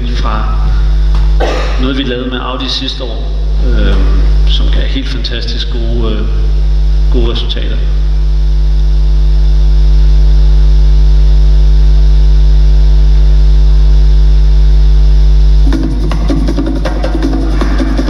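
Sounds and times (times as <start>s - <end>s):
electrical mains hum: 0.0s - 18.0s
music with drums: 15.6s - 18.0s.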